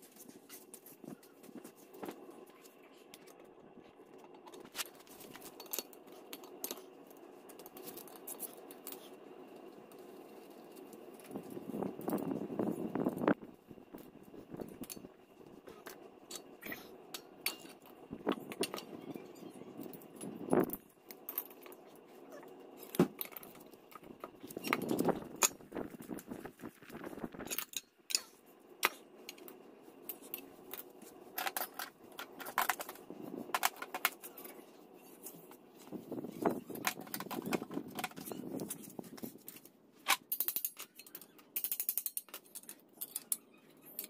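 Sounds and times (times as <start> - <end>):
metal tools clinking and knocking: 3.1 - 9.2, 14.0 - 26.2, 27.4 - 44.0.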